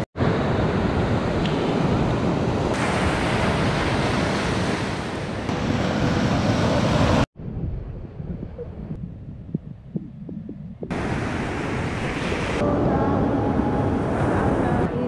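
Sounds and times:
sea surf washing ashore: 0.0s - 7.3s, 10.9s - 15.0s
wind buffeting microphone: 7.4s - 15.0s.

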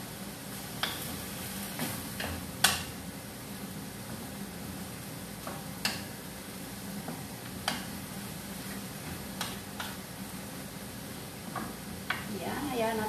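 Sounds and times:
food sizzling in a frying pan: 0.0s - 13.0s
spatula clicking against pan: 2.2s - 2.9s, 7.6s - 7.9s.

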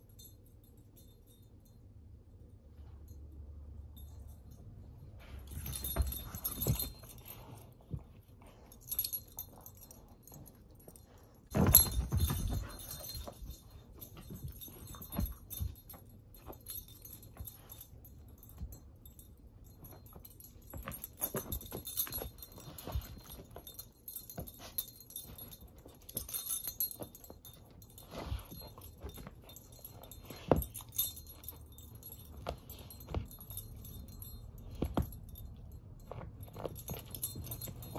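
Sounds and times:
collar tags jingling: 0.0s - 37.9s
paws and toy thudding on floor: 5.5s - 9.5s, 11.4s - 18.9s, 32.1s - 37.9s.

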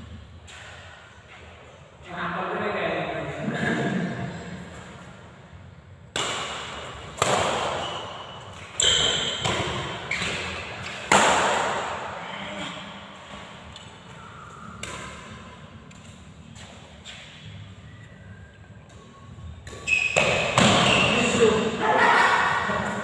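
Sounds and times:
rackets hitting shuttlecock: 6.1s - 12.2s, 14.7s - 17.4s, 19.0s - 21.4s.

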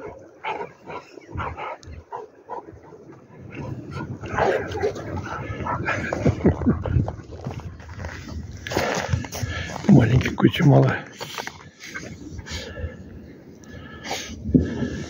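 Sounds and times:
dogs barking and yipping: 0.0s - 7.8s.

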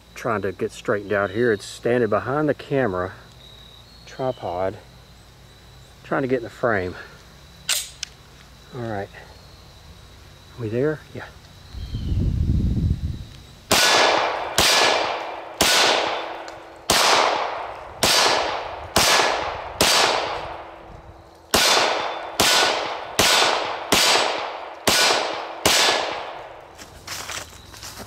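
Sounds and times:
pistol shots: 13.7s - 20.8s, 21.5s - 26.5s.

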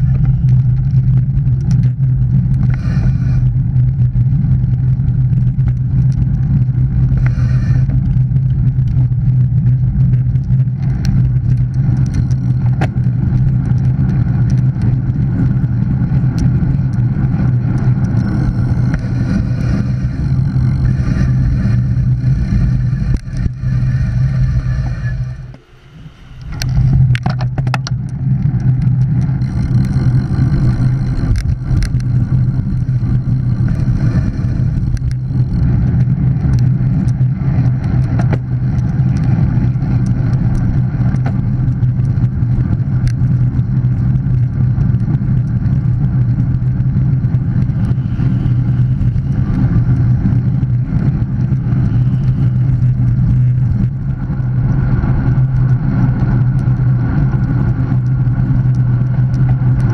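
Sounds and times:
tyre and road noise: 0.0s - 59.9s
wind rumble on microphone: 0.0s - 59.9s
sharp clicks: 26.3s - 37.2s.

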